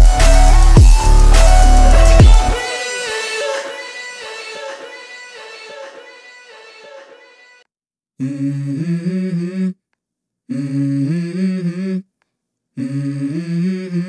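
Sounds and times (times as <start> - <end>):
wordless vocal music: 0.0 - 7.6, 8.2 - 9.8.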